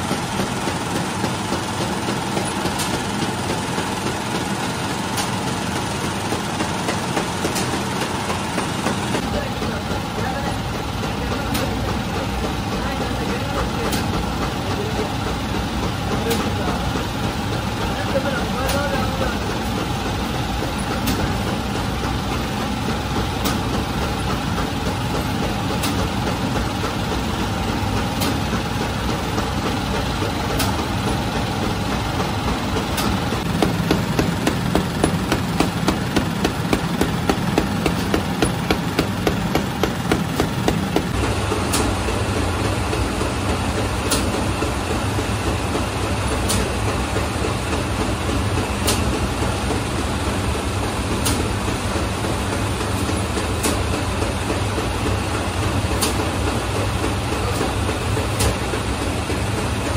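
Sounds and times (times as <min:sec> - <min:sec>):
bakery machinery drone: 0:00.0 - 0:59.9
rapid rhythmic clatter: 0:32.5 - 0:41.2.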